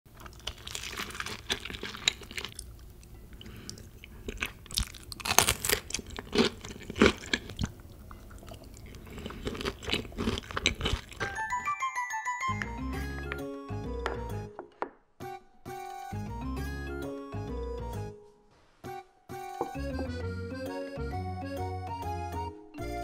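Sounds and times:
crunchy chewing: 0:00.1 - 0:11.3.

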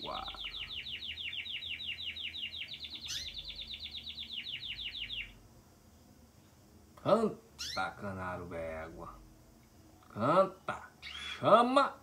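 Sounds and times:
canary trilling: 0:00.0 - 0:05.4, 0:07.6 - 0:08.0, 0:11.0 - 0:11.4.

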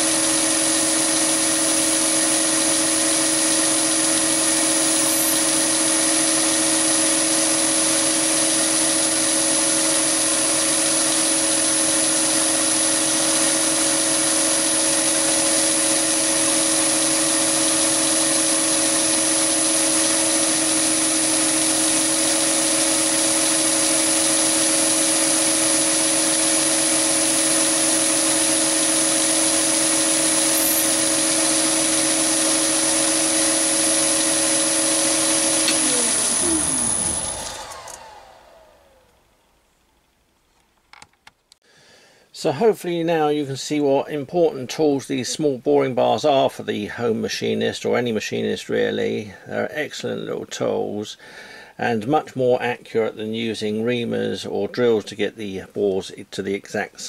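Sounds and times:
boring bar cutting steel: 0:00.0 - 0:38.8
lathe humming and whining: 0:00.0 - 0:39.0.

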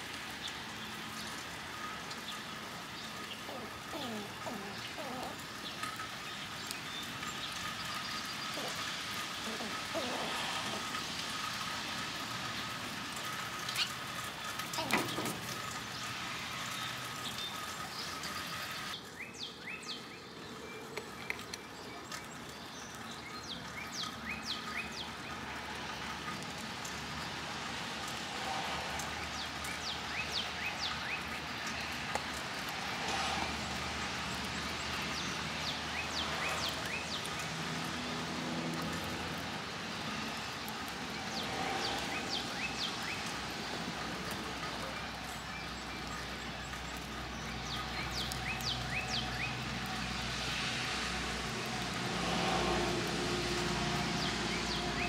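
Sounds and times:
outdoor background noise: 0:00.0 - 0:55.0
squirrel making sharp sounds: 0:03.4 - 0:05.6, 0:08.4 - 0:11.2.

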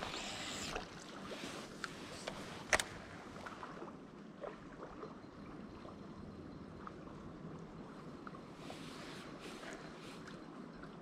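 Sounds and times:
river water flowing: 0:00.0 - 0:05.8.

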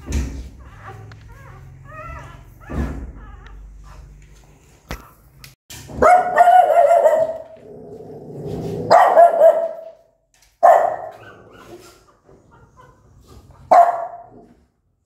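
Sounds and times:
small dog barking: 0:06.0 - 0:07.6, 0:08.9 - 0:10.0, 0:10.6 - 0:11.3, 0:13.7 - 0:14.4.

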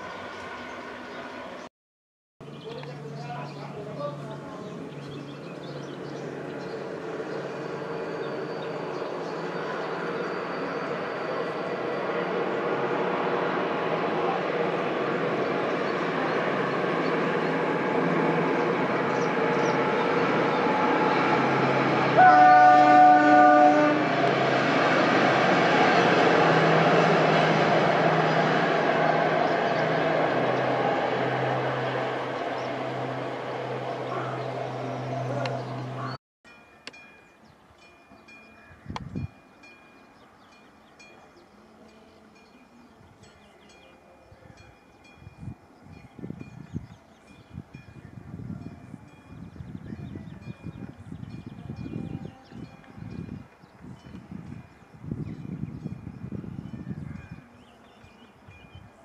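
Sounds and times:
passenger train rumbling past: 0:00.0 - 0:01.7, 0:02.4 - 0:59.0
train horn blast: 0:20.6 - 0:24.6
wind rumbling on microphone: 0:38.7 - 0:39.4, 0:44.4 - 0:59.0.

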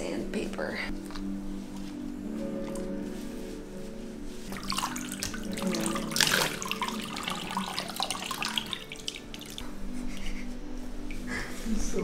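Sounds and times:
water splashing in bathtub: 0:04.5 - 0:09.6.

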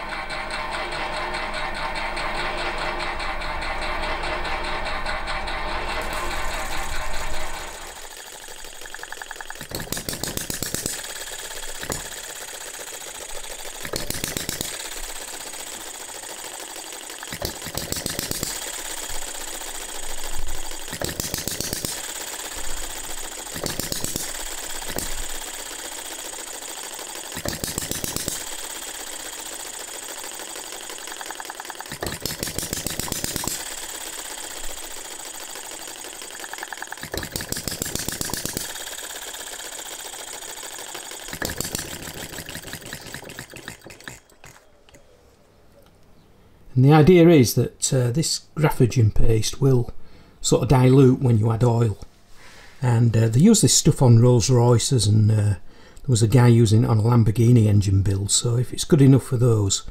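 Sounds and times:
model engine exhaust beats: 0:00.0 - 0:45.0.

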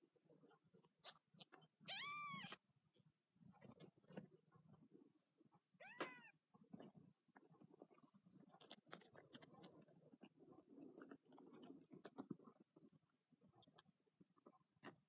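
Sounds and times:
kittens mewing: 0:05.8 - 0:06.3.

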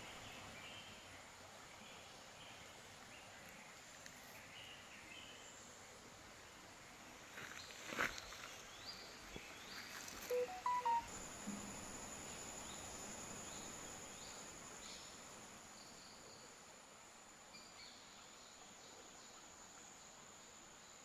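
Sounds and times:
short bird chirps: 0:10.3 - 0:11.0.

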